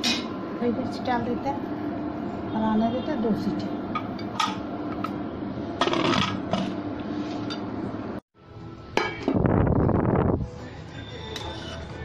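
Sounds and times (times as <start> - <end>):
background music: 10.2 - 12.0.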